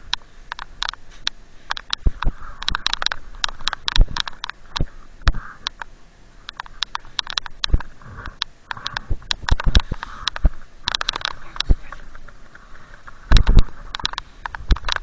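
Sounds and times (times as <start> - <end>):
sharp clicks and knocks: 0.0 - 15.0.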